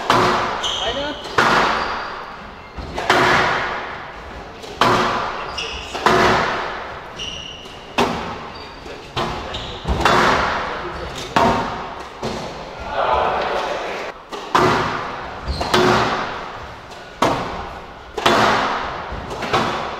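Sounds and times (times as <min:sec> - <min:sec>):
squash ball hits: 0:00.0 - 0:00.6, 0:01.2 - 0:02.2, 0:02.8 - 0:07.0, 0:08.0 - 0:08.4, 0:09.2 - 0:12.6, 0:14.3 - 0:19.9
court shoes squeaking: 0:00.0 - 0:12.8, 0:15.2 - 0:19.9.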